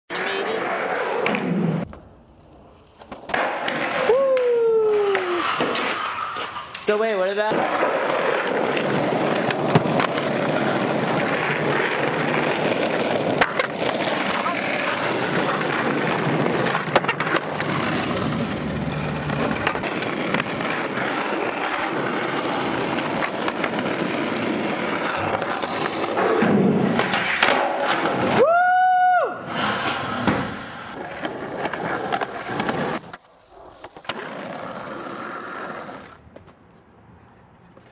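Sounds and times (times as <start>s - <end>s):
skateboard wheels rolling on asphalt: 0.1s - 37.9s
skateboard clacks: 3.0s - 6.8s, 7.5s - 28.4s.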